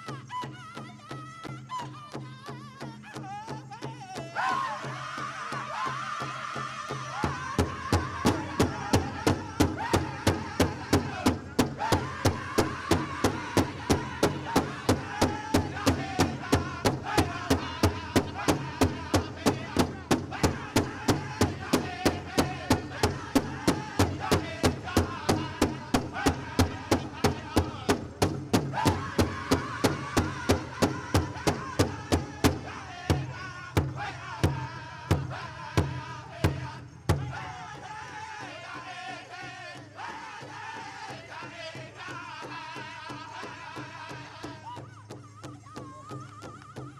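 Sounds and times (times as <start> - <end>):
group of people singing: 0.0 - 46.9
big drum steady beat: 7.0 - 37.6.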